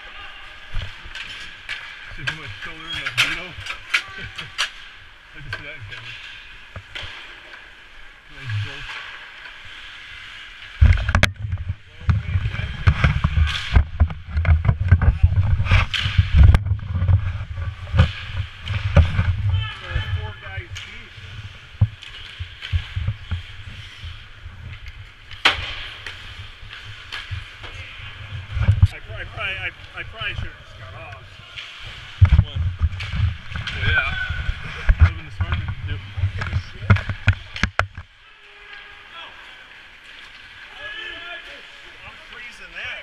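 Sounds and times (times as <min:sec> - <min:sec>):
hockey sticks and puck clacking: 0:00.0 - 0:07.8, 0:08.4 - 0:30.4, 0:31.0 - 0:38.1
skate blades scraping ice: 0:15.1 - 0:28.0.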